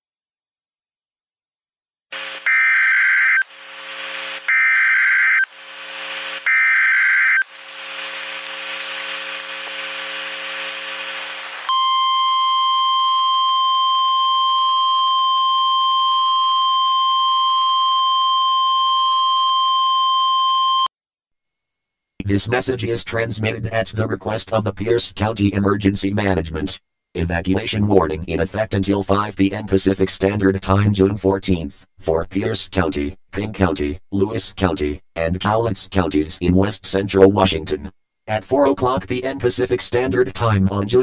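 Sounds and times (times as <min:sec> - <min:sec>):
hissing hum: 0:02.2 - 0:12.1
screeching digital data tones: 0:02.4 - 0:03.5, 0:04.5 - 0:05.5, 0:06.4 - 0:07.5.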